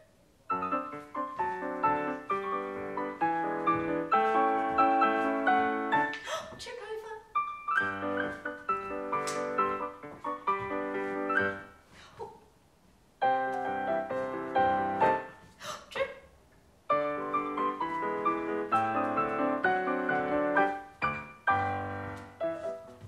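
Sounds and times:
solo piano music: 0.5 - 6.2, 7.3 - 11.8, 13.2 - 15.5, 16.9 - 23.0.

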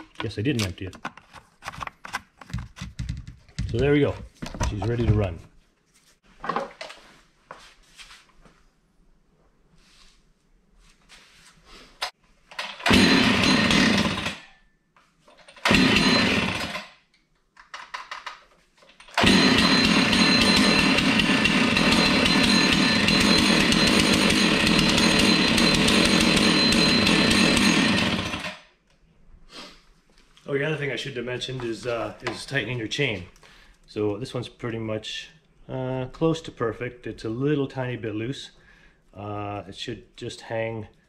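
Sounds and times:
chainsaw starting and running: 12.6 - 14.6, 15.5 - 16.9, 19.1 - 28.7.

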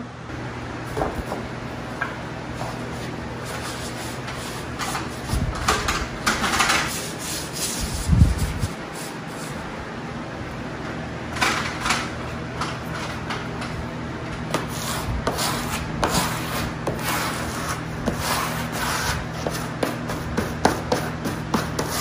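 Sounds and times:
steady low hum: 0.0 - 22.0
wallpaper smoother scraping: 2.5 - 5.6, 6.6 - 9.7, 14.5 - 22.0.

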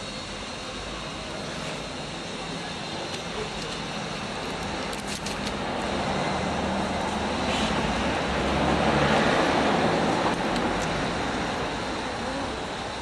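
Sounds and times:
vehicle passing by: 5.7 - 13.0.

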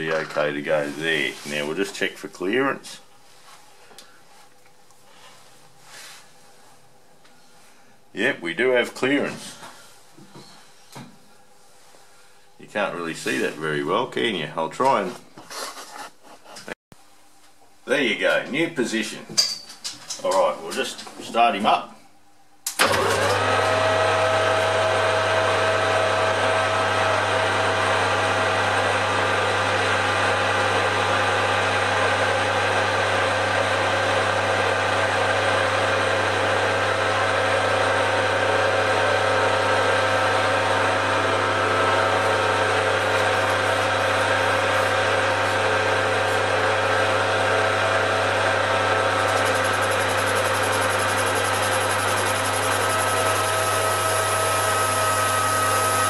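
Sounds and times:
lathe motor hum: 22.8 - 56.0.

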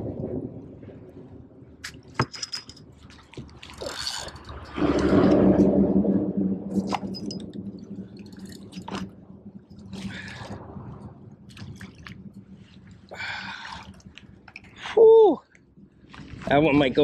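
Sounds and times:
steady low hum: 0.0 - 17.0
water splashing and dripping: 0.0 - 17.0
gear scraping against kayak hull: 3.0 - 5.9.

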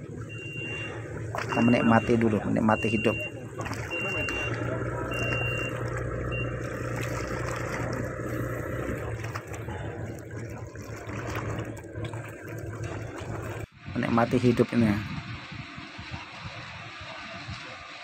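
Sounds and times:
low motor hum: 0.0 - 18.0
sea water lapping and splashing: 0.0 - 18.0
short high beeps: 0.3 - 6.7.

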